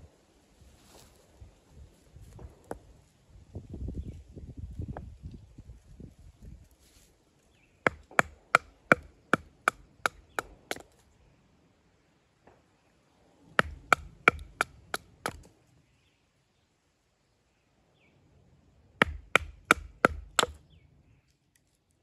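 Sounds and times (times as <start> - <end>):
firewood being chopped: 7.9 - 10.9, 13.6 - 15.5, 19.0 - 20.6.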